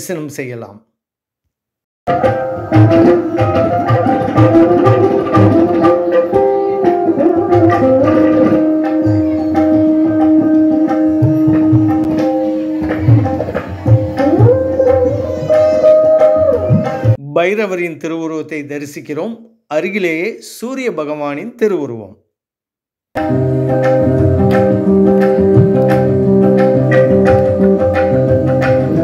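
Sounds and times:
sliding string instrument melody: 2.1s - 17.2s, 23.2s - 29.0s
tabla strokes: 2.1s - 17.2s, 23.2s - 29.0s.

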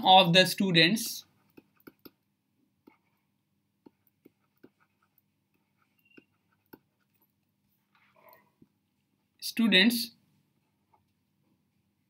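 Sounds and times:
stylus tapping on tablet: 1.5s - 2.2s.

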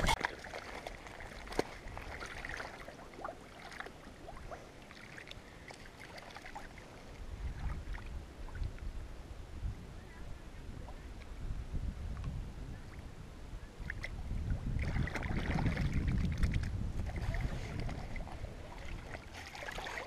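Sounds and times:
shallow water sloshing: 0.0s - 8.9s, 13.8s - 20.0s.

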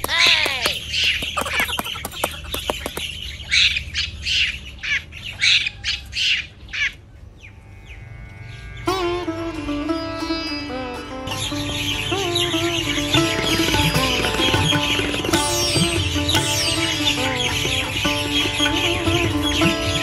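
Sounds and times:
bird squawking: 0.2s - 7.0s.

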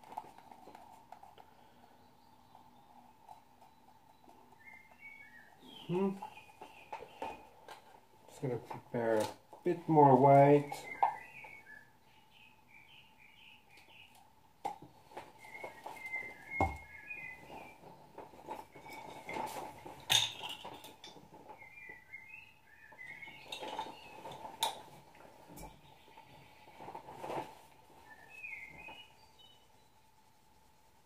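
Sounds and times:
paint bottles being handled: 0.0s - 11.5s, 14.7s - 21.7s, 23.0s - 26.0s
songbird chirping: 0.1s - 31.0s.

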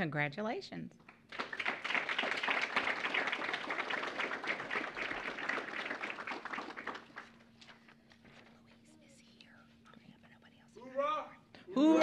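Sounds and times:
audience applauding: 1.3s - 7.4s.

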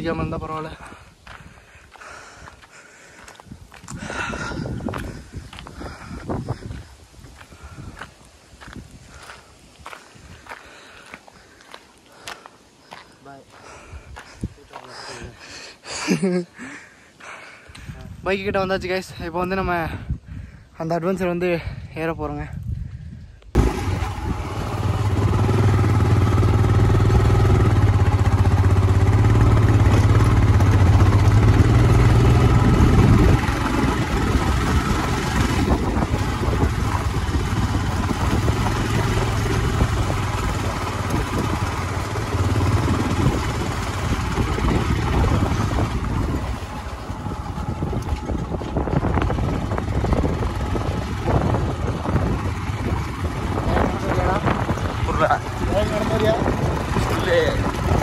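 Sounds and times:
motorcycle engine running: 3.4s - 6.9s, 23.6s - 58.0s.

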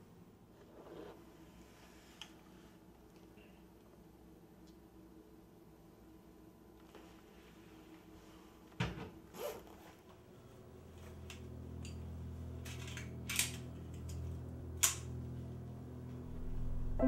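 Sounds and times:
low drone: 10.8s - 17.0s
handgun metallic clicks: 12.8s - 14.2s.

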